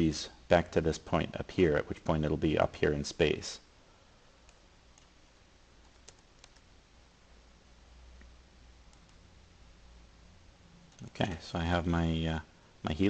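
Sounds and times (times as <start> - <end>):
low steady hum: 0.0 - 13.0
computer mouse and keyboard clicks: 5.8 - 6.7.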